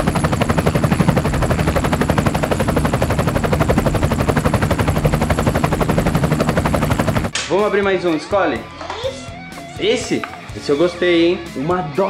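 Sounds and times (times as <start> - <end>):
helicopter rotor chopping: 0.0 - 7.4.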